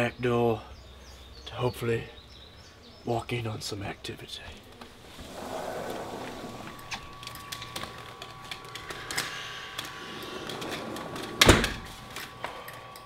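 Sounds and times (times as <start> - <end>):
faint steady hum: 0.0 - 13.0
blinds clicking and clattering: 5.1 - 12.4.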